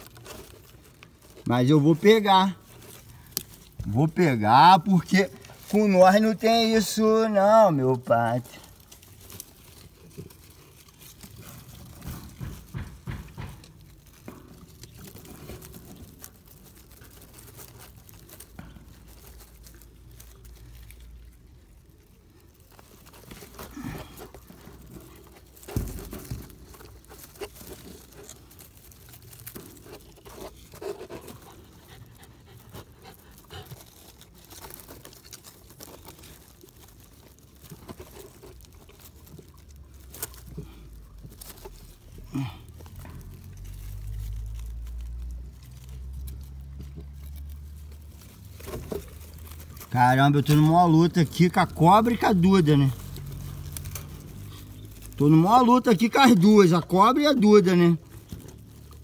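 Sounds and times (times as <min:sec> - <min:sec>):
rustling of dry leaves and sticks: 0:00.0 - 0:59.0
small knocks: 0:10.6 - 0:16.2
dog panting: 0:30.8 - 0:34.8.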